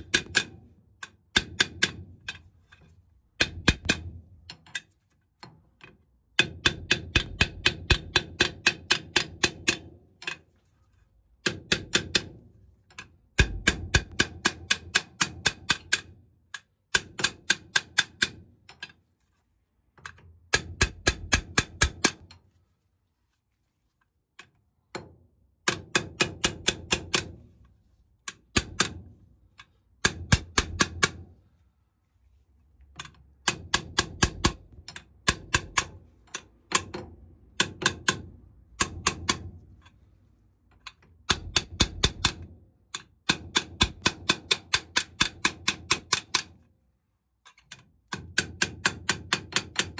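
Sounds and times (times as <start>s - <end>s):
hammer tapping metal: 0.0s - 2.4s, 3.4s - 4.8s, 6.4s - 10.4s, 11.4s - 12.4s, 13.4s - 18.4s, 20.1s - 22.4s, 25.6s - 27.4s, 28.3s - 31.2s, 33.4s - 39.6s, 41.2s - 46.5s.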